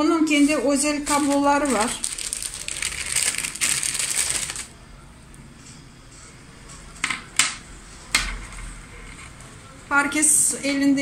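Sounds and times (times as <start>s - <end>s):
plastic bag crinkling: 1.0s - 4.7s.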